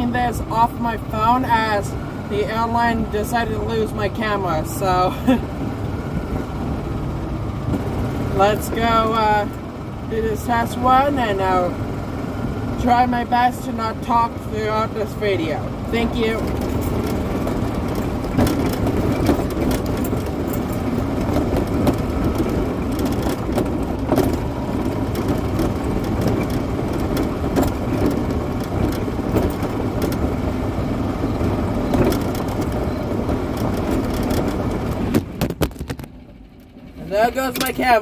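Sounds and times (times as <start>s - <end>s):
small crackles and rattles: 16.5s - 30.3s, 31.9s - 36.2s.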